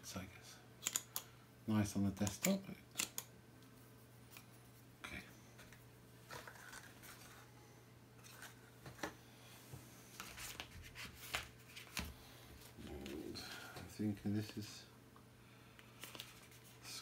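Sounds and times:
steady low hum: 0.0s - 17.0s
paper and cardboard packaging rustling: 6.2s - 7.5s.

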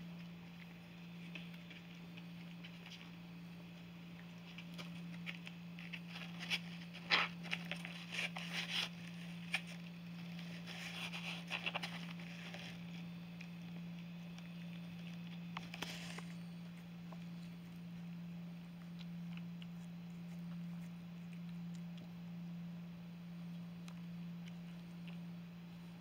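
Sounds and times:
steady low hum: 0.0s - 26.0s
cat scratching cardboard box: 4.6s - 12.9s.

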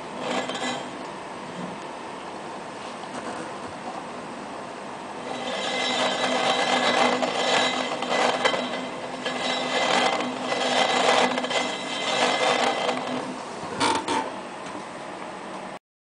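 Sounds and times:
wheel whirring: 5.2s - 13.4s.

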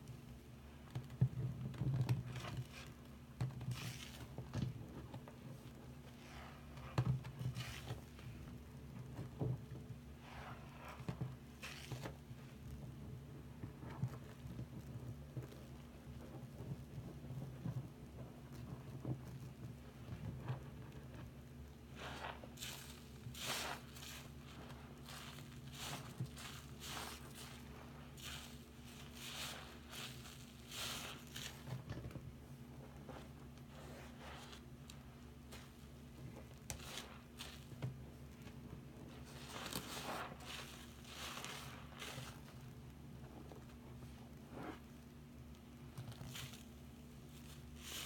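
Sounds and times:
wet sponge squishes: 0.9s - 45.1s, 45.8s - 48.0s.

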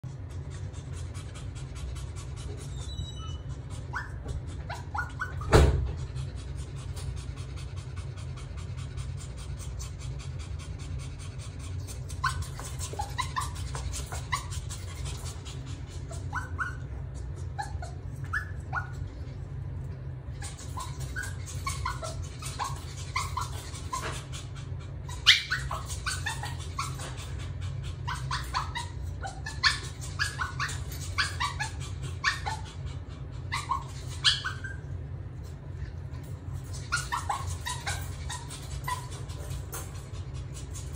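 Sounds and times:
puppy whining and yipping: 2.4s - 5.9s, 11.8s - 19.2s, 20.3s - 35.1s, 36.4s - 40.9s.

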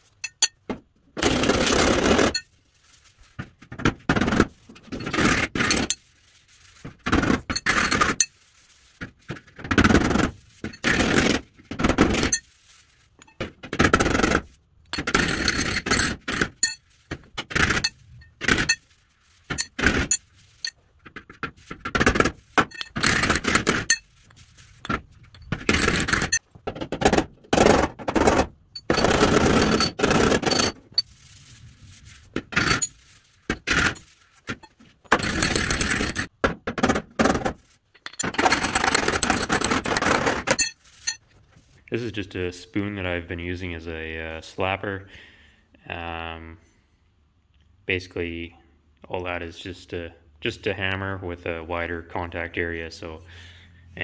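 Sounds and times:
hand rubbing across metal: 28.2s - 36.3s.

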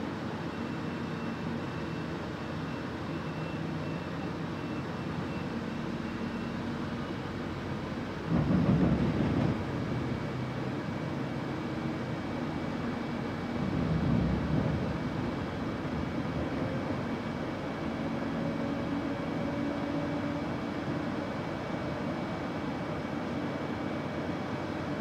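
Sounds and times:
bus engine and road hum: 0.0s - 25.0s.

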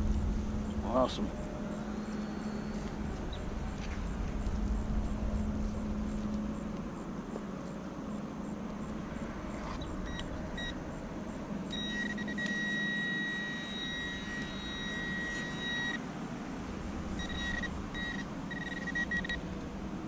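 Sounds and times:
pinpointer beeping: 10.0s - 10.8s, 11.7s - 16.0s, 17.2s - 19.4s.

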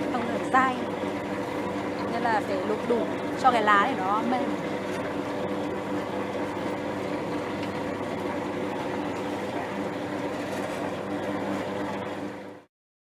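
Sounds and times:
spin extractor humming drone: 0.0s - 12.7s.

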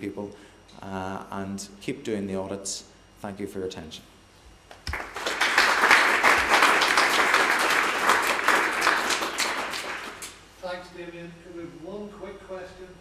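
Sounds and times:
audience applauding: 4.7s - 10.3s.

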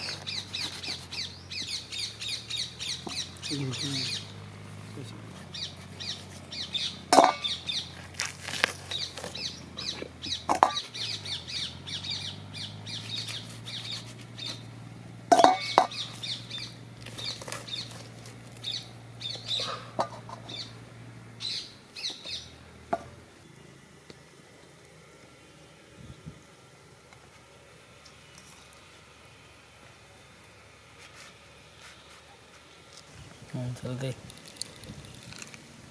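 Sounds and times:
small birds chirping: 0.0s - 26.4s
steady low hum: 0.0s - 35.9s.

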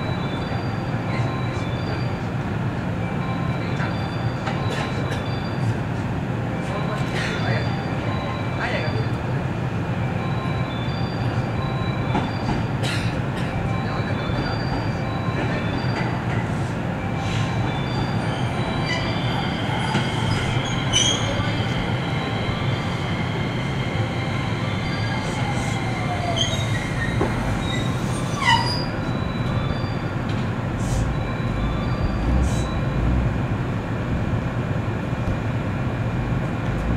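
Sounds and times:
train low rumble: 0.0s - 36.9s
short falling brake squeal: 11.9s - 12.7s, 17.2s - 21.5s, 24.8s - 30.2s.

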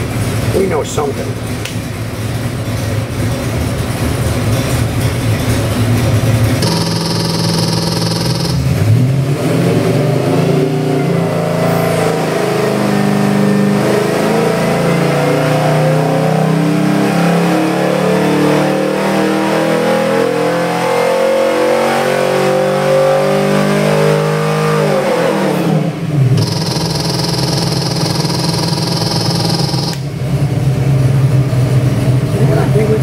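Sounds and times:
engine revving at full throttle: 6.6s - 30.8s.

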